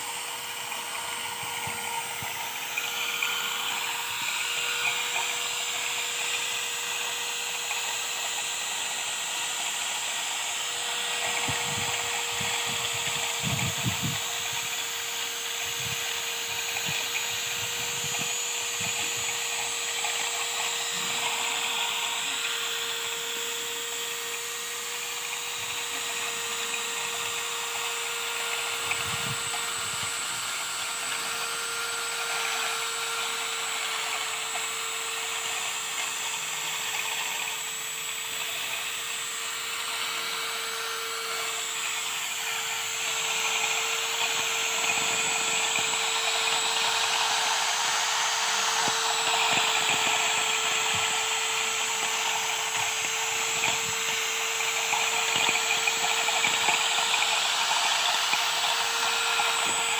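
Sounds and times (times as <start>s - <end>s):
electric drill motor whine: 0.0s - 59.9s.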